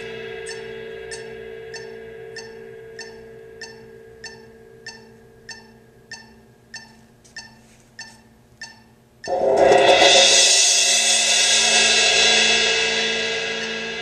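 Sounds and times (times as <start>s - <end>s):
suspended cymbal struck with mallets: 0.0s - 6.6s, 9.3s - 14.0s
steady ticking: 0.0s - 10.2s
faint hum: 0.0s - 14.0s.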